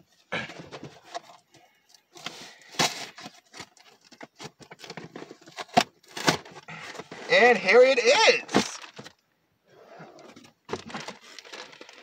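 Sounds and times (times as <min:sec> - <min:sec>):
packaging clicks and scrapes: 0:00.4 - 0:07.5, 0:10.1 - 0:12.0.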